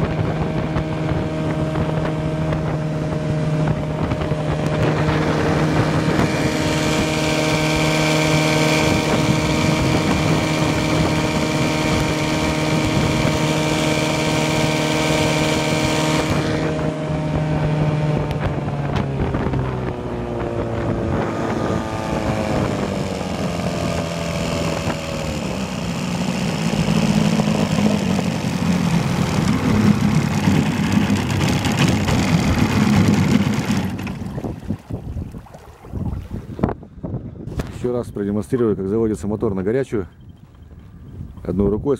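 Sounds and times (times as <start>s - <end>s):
outboard motor running: 0.0s - 37.7s
wind: 0.0s - 41.9s
water wash: 21.6s - 36.7s.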